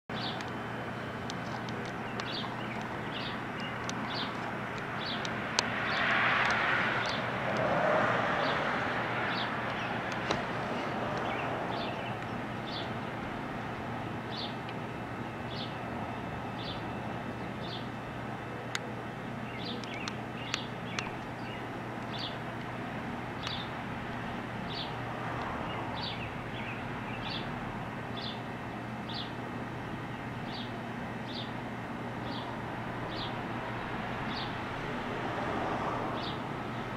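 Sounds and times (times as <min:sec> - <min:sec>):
bird chirping: 0:00.1 - 0:06.1, 0:09.2 - 0:10.1, 0:10.7 - 0:13.2, 0:15.5 - 0:15.8, 0:16.5 - 0:18.0, 0:18.8 - 0:22.4, 0:23.4 - 0:23.7, 0:25.7 - 0:27.5
background hum: 0:00.1 - 0:36.9
outdoor background noise: 0:00.1 - 0:36.9
sharp clicks: 0:01.2 - 0:07.7, 0:19.6 - 0:21.3
passing vehicle rushing: 0:05.5 - 0:12.0.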